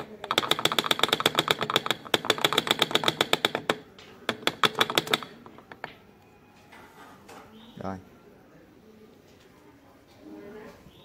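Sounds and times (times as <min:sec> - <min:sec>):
rapid mechanical clicking: 0:00.0 - 0:05.4.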